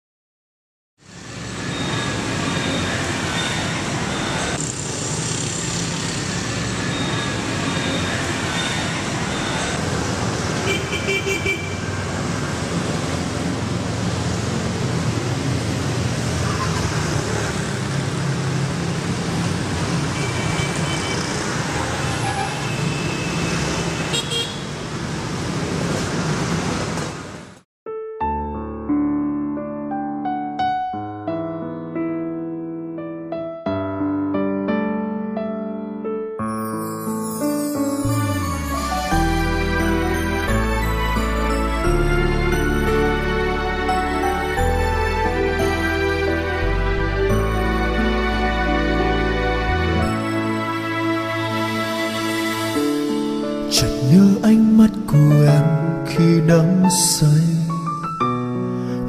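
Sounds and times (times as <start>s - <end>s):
passing cars rumble: 1.0s - 27.6s
street traffic noise: 1.0s - 27.7s, 36.6s - 59.0s
car horn toots: 10.6s - 11.8s, 24.0s - 24.7s.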